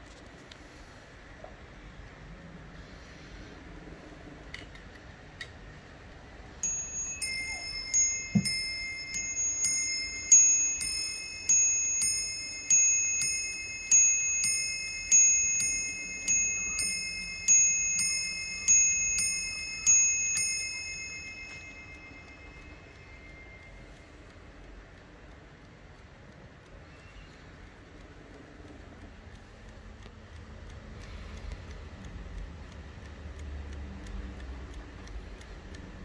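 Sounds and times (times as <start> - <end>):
faint clicks: 2.8 - 36.0
clock striking on bells: 6.6 - 24.0.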